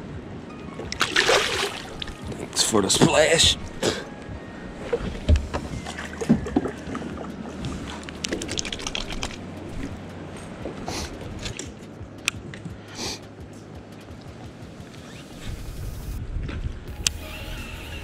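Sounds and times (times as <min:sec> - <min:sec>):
low steady hum: 0:00.0 - 0:12.8
knocks and clicks on boat hull: 0:04.9 - 0:06.8.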